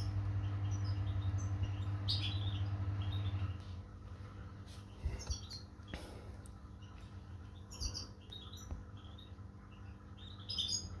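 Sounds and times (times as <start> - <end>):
lovebirds chirping: 0.0 - 11.0.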